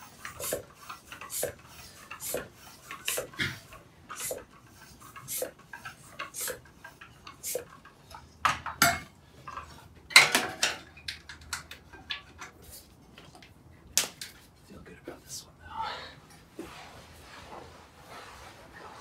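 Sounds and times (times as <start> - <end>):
hand pump strokes: 0.0 - 10.0.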